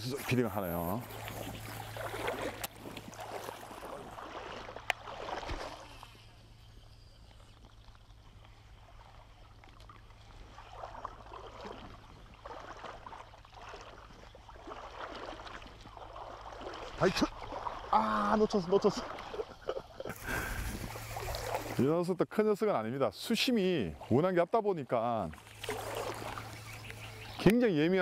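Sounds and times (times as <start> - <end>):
river water sloshing and splashing: 0.0 - 22.0, 25.2 - 27.9.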